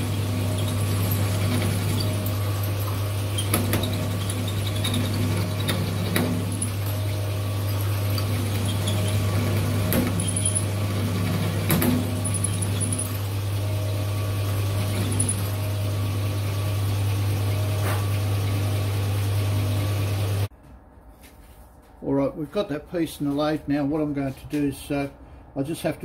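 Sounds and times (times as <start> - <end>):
drill press humming: 0.0 - 20.5.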